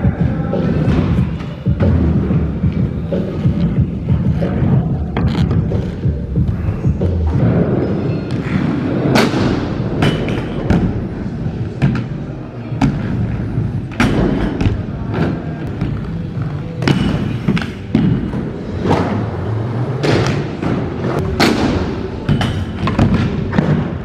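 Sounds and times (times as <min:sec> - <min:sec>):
skate landing thumps and clacks: 0:08.3 - 0:19.4, 0:20.0 - 0:24.0.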